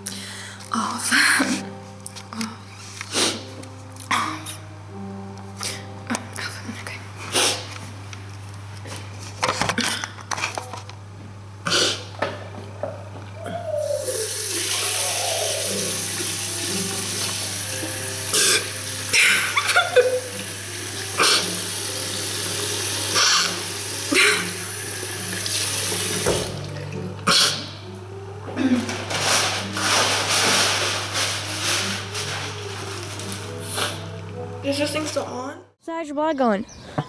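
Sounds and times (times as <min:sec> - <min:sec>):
water tap running into sink: 0:14.1 - 0:27.0
girl crying and sobbing: 0:19.1 - 0:20.4, 0:28.3 - 0:29.0.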